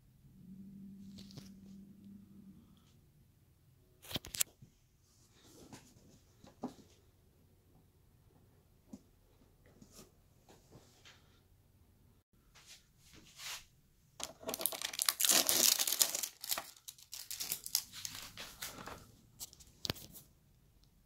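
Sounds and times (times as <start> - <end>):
packaging tearing and crinkling: 14.2 - 18.4.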